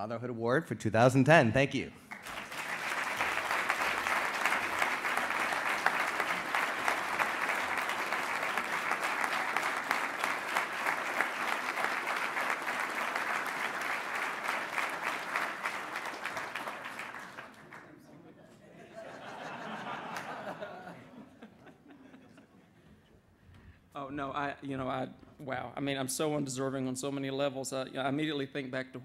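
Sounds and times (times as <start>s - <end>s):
audience applauding: 2.1s - 18.1s, 19.2s - 20.9s.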